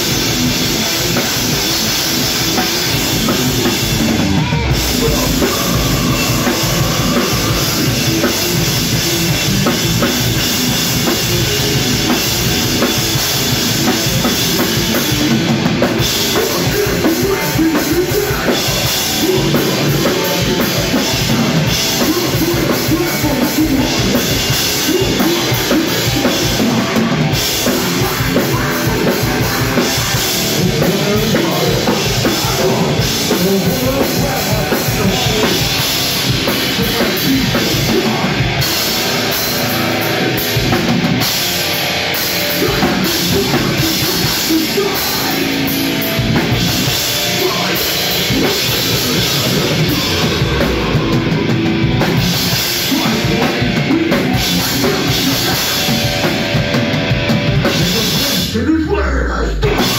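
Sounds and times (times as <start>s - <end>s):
fast drum strikes: 0.0s - 58.6s, 59.6s - 59.9s
electric guitar: 0.0s - 59.9s
heavy metal band playing: 0.0s - 59.9s.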